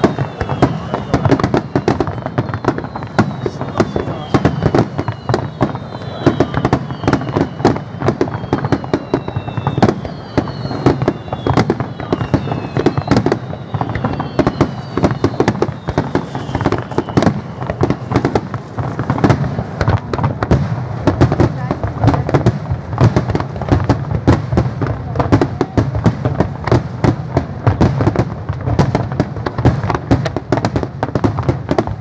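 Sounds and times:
high whistles sliding down: 0:00.0 - 0:18.4.

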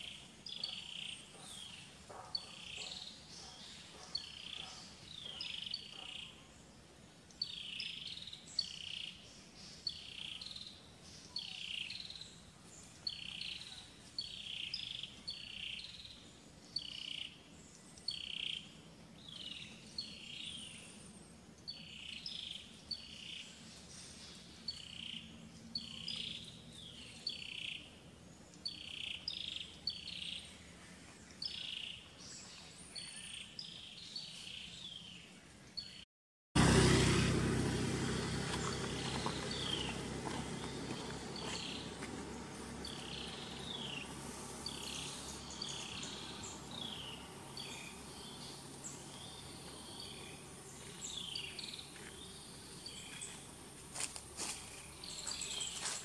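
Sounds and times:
high-pitched chirping calls: 0:38.5 - 0:53.5.

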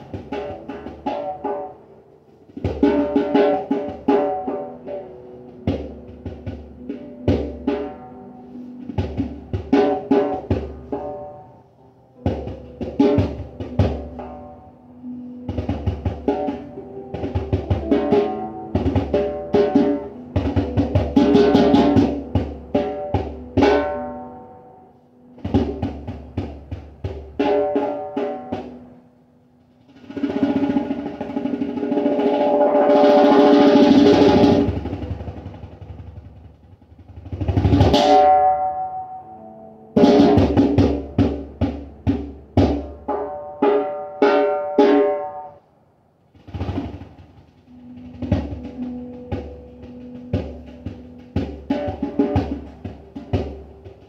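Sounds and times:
hand drum strokes: 0:12.2 - 0:24.2, 0:29.8 - 0:38.8, 0:46.4 - 0:54.0.

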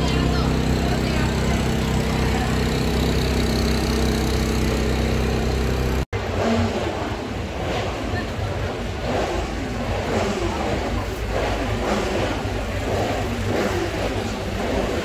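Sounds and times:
motorcycle engine idling: 0:00.0 - 0:06.1
indistinct voices: 0:00.0 - 0:15.0.

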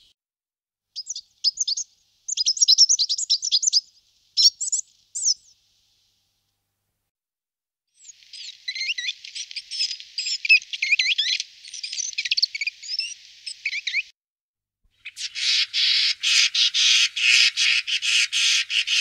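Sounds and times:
bird chirping: 0:01.0 - 0:05.6, 0:08.0 - 0:14.1, 0:15.0 - 0:19.0
bird rasping calls: 0:15.0 - 0:19.0.

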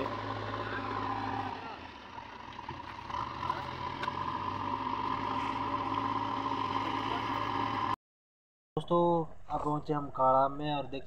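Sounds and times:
heavy machine engine whining: 0:00.0 - 0:08.0.

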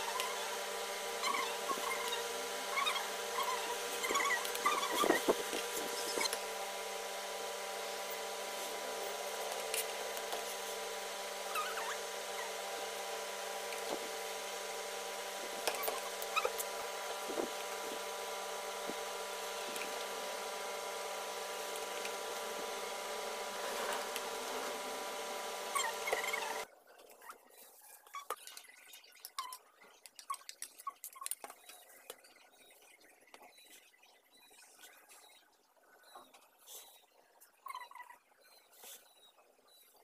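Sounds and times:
machine hum: 0:00.0 - 0:26.7.

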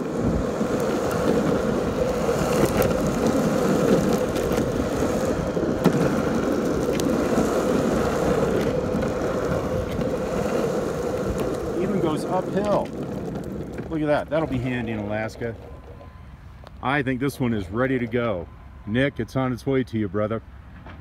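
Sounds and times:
faint wheel clicks over bumps: 0:00.0 - 0:16.8
skateboard wheels rolling on asphalt: 0:00.0 - 0:19.1.

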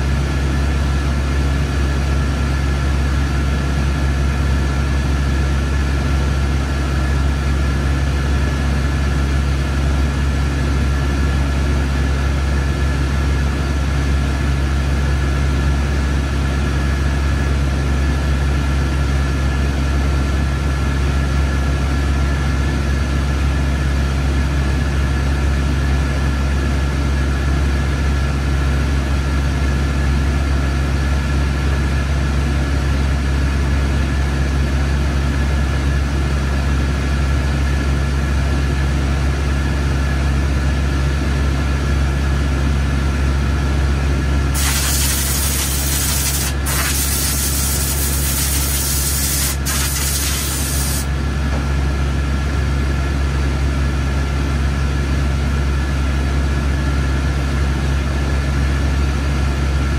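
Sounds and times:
loud hiss: 0:44.6 - 0:51.1.

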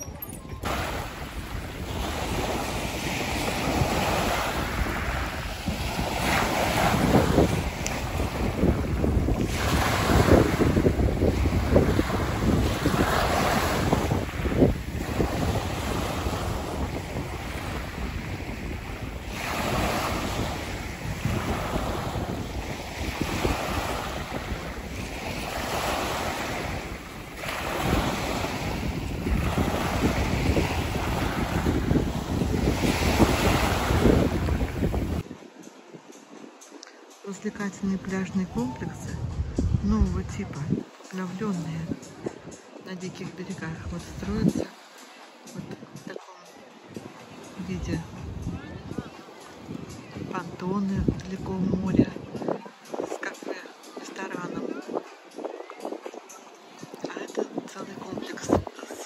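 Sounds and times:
wind buffeting microphone: 0:00.0 - 0:36.8, 0:38.0 - 0:42.8, 0:46.9 - 0:53.2, 0:54.6 - 0:59.0
surf washing onto shore: 0:00.6 - 0:35.6.

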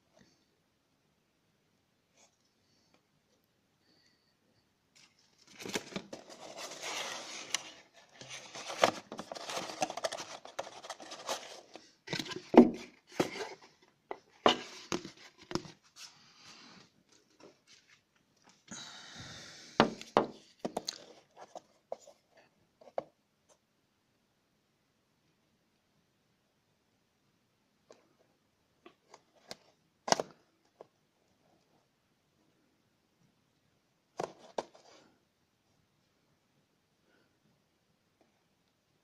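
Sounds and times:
cardboard packaging rustling: 0:05.0 - 0:18.1.

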